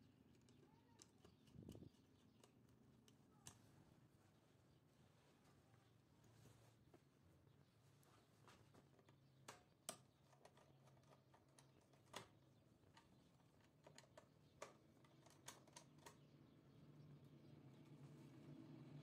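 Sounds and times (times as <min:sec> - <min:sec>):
screwdriver clicking on plastic terminals: 0:00.3 - 0:03.6.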